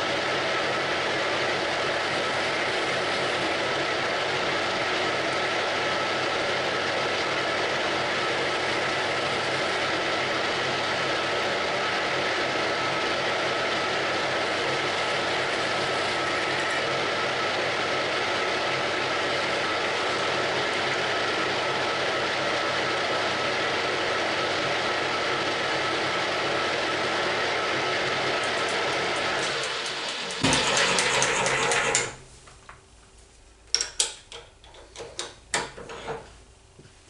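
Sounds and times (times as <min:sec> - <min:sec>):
metal lathe running: 0:00.0 - 0:32.2.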